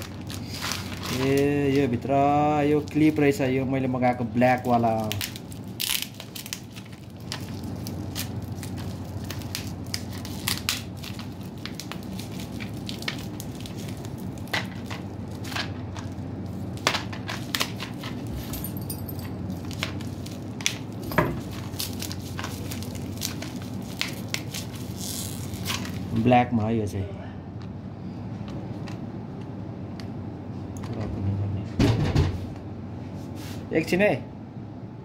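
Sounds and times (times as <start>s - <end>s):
bubble wrap crackling: 0.0s - 18.4s, 19.4s - 26.3s.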